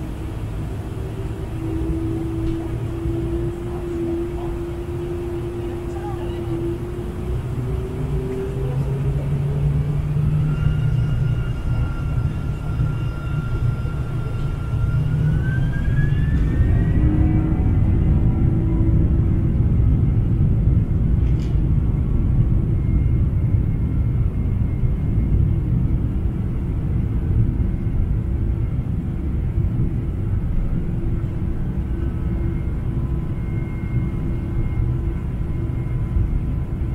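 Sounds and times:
jet engine low rumble: 0.0 - 36.9
thin engine whine: 0.0 - 36.9.

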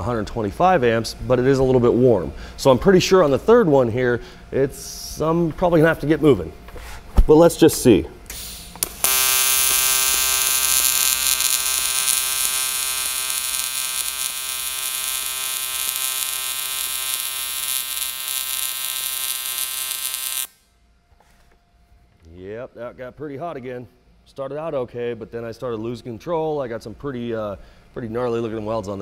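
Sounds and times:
welding arc buzzing: 8.4 - 20.8.

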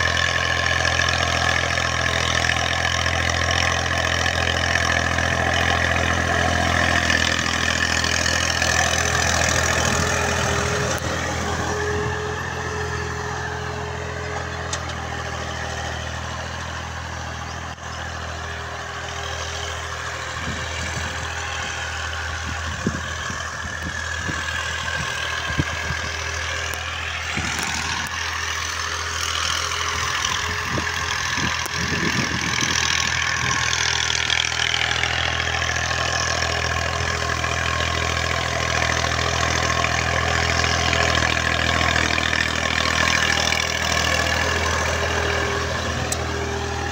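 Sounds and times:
tractor engine running: 0.0 - 46.9.

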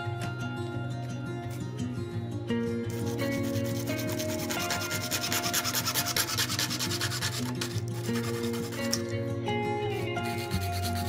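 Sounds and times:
background music: 0.0 - 11.0
hacksaw sawing plastic pipe: 3.6 - 9.1.

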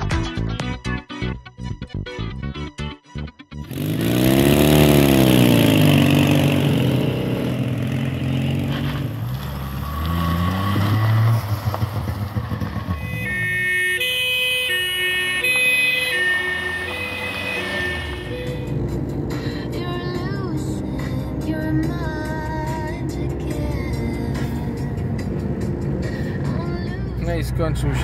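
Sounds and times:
music with held notes: 0.0 - 3.7
old vehicle engines revving: 3.6 - 28.0.

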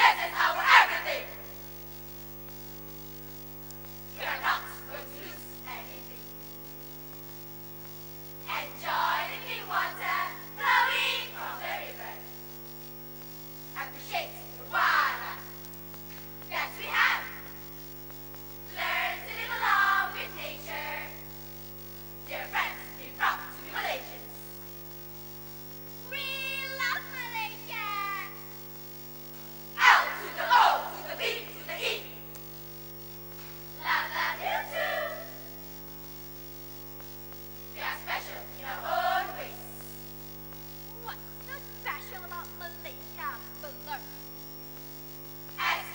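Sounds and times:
girls chanting in unison: 0.0 - 1.5, 4.2 - 6.2, 8.5 - 12.2, 13.8 - 15.5, 16.5 - 17.4, 18.7 - 21.2, 22.4 - 24.2, 29.8 - 32.1, 33.8 - 35.4, 37.8 - 39.7, 45.6 - 45.9
electrical mains hum: 0.0 - 45.9.

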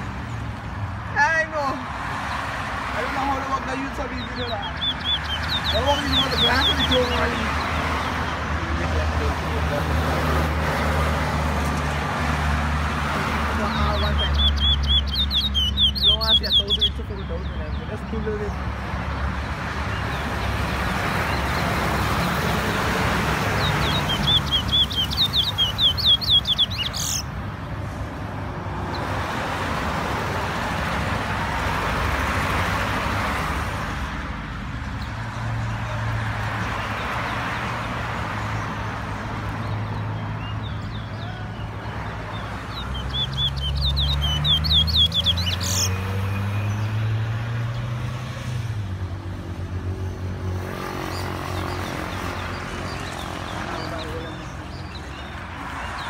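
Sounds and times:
songbird trilling and whistling: 3.9 - 8.1, 13.7 - 17.6, 23.5 - 27.3, 39.6 - 46.9.

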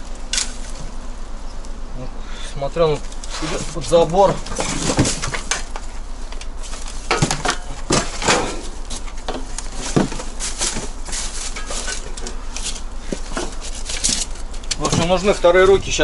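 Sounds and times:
shovel digging and scraping: 3.0 - 15.9.

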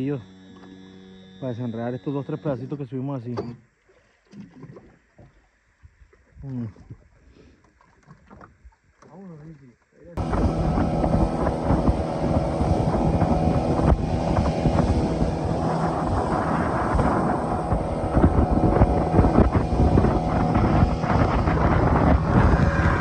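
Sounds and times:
outboard motor drone: 0.0 - 5.4, 10.1 - 23.0
wind buffeting microphone: 10.2 - 23.0.

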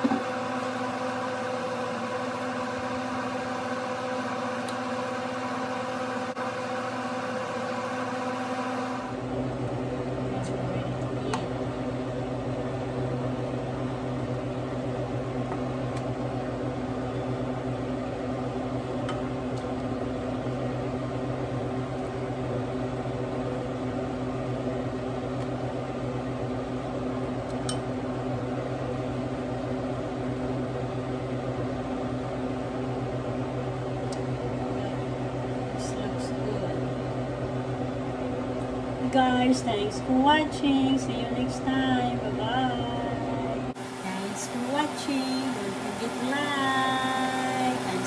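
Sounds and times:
steady machine hum: 0.0 - 48.0.

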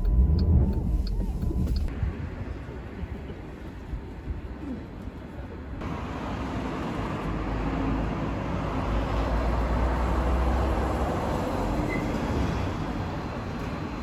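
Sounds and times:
low rumble: 0.0 - 4.4.

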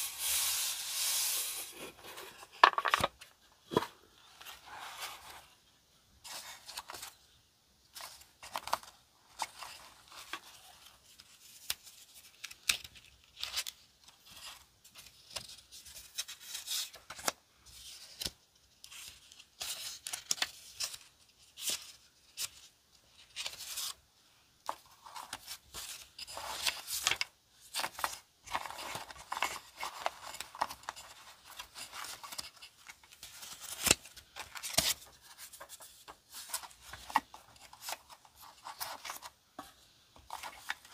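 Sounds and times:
paper rustling: 7.9 - 18.3, 24.7 - 40.9.

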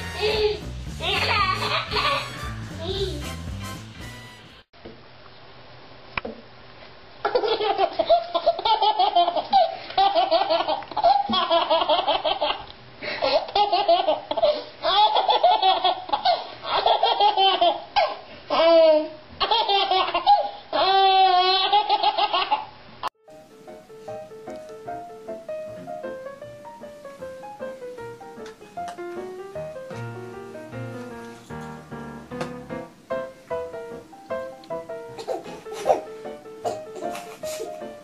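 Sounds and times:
baby laughing: 0.0 - 3.3, 7.2 - 22.7, 35.1 - 38.0.

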